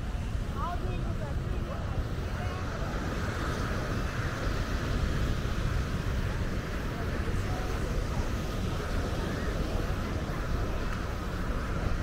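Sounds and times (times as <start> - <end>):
wind rumbling on microphone: 0.0 - 12.0
people's voices: 0.5 - 12.0.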